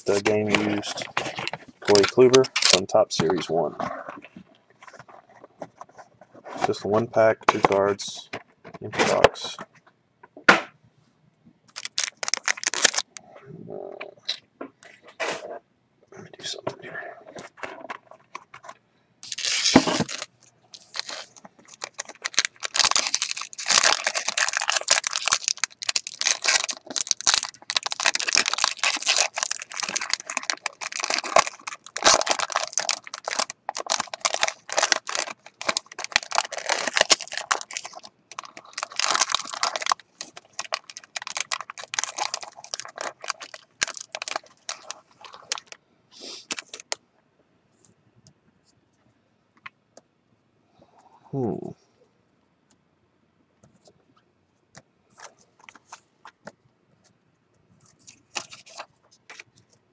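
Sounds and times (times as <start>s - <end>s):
plastic wrapping crinkling: 0.0s - 3.0s, 11.7s - 13.2s, 19.2s - 45.8s, 46.4s - 47.0s.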